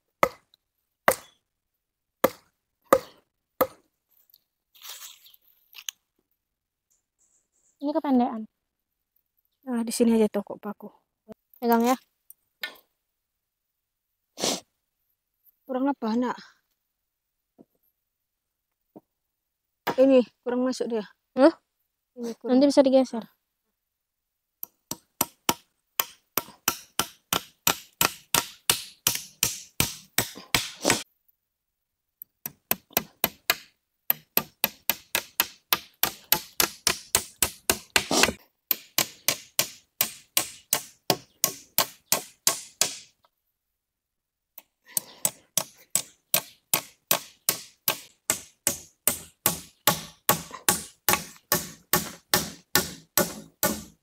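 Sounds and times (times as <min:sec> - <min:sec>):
hammer driving nails: 0:24.9 - 0:31.0, 0:32.4 - 0:43.1, 0:45.0 - 0:54.0.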